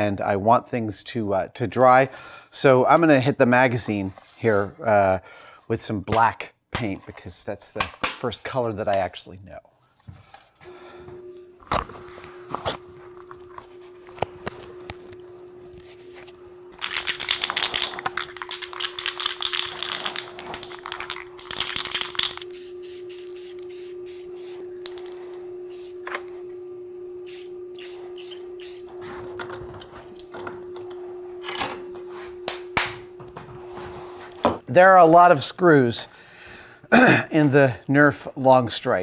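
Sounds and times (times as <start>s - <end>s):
steady low hum: 10.6s - 34.8s
aerosol spray can hissing: 22.0s - 24.7s, 25.7s - 26.0s, 27.2s - 28.9s.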